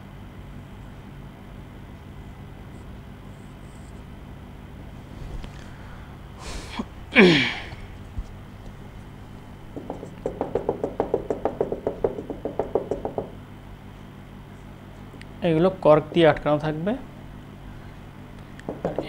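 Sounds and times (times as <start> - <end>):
marker tapping on whiteboard: 9.7 - 13.3, 18.6 - 19.0.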